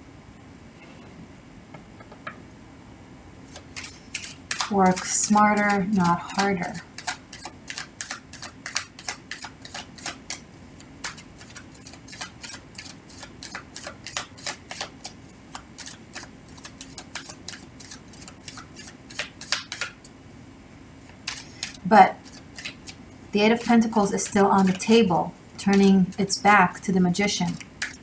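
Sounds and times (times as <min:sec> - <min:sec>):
cards being shuffled: 0:21.2 - 0:23.0.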